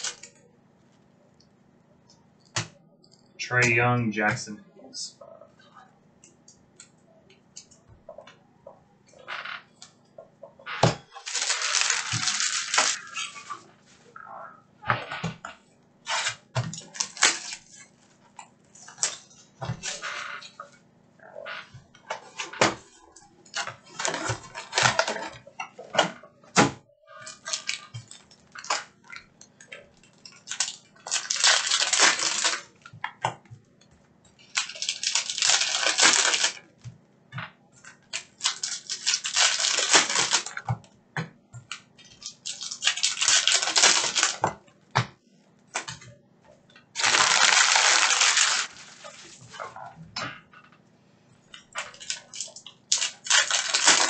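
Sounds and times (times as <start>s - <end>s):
cellophane wrappers crinkling: 0.0s - 0.4s, 10.8s - 13.6s, 16.1s - 20.6s, 23.0s - 25.4s, 27.2s - 33.0s, 34.4s - 36.7s, 37.8s - 40.6s, 42.0s - 44.5s, 46.9s - 49.8s, 51.5s - 54.0s
wrapper ripping: 0.0s - 0.4s, 10.8s - 13.5s, 16.1s - 17.8s, 23.6s - 25.3s, 27.2s - 28.9s, 30.3s - 32.8s, 34.4s - 36.6s, 38.1s - 40.6s, 42.2s - 44.5s, 47.0s - 49.6s, 51.8s - 54.0s.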